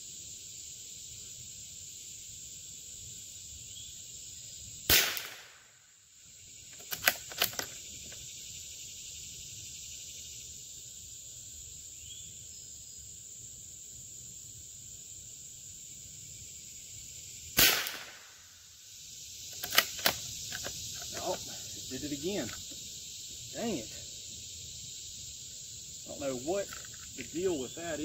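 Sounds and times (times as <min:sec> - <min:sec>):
insect chirring: 0:00.0 - 0:28.0
rifle shot: 0:04.9 - 0:05.8, 0:17.6 - 0:18.5
metallic bolt clicks: 0:06.7 - 0:07.8, 0:19.6 - 0:21.3.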